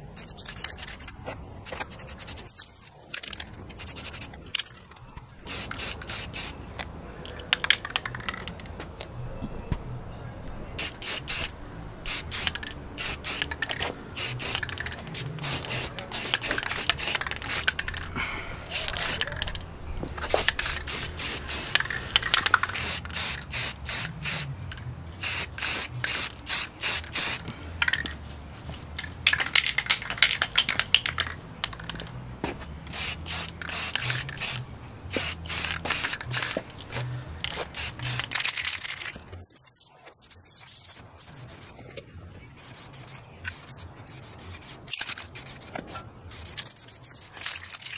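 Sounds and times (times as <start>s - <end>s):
aerosol spray can hissing: 1.7s - 2.7s, 5.5s - 6.6s, 10.8s - 11.5s, 12.1s - 17.8s, 18.7s - 19.4s, 20.3s - 24.5s, 25.2s - 27.4s, 32.9s - 36.6s, 37.6s - 38.4s, 39.5s - 41.8s, 42.6s - 47.2s.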